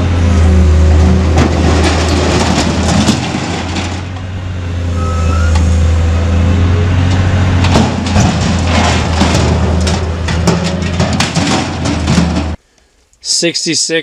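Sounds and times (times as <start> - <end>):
scrap metal clanking and scraping: 1.0 - 4.3, 6.7 - 12.6
crane engine droning: 3.5 - 10.4.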